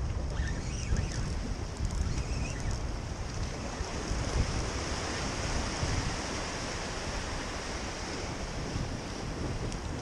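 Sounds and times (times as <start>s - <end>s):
waves breaking over rocks: 0.0s - 10.0s
wind rumble on microphone: 0.0s - 10.0s.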